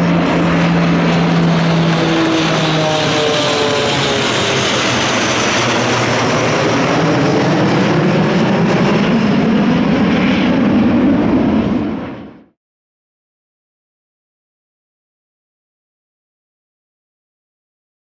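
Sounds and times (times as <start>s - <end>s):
jet aircraft passing overhead: 0.0s - 12.6s.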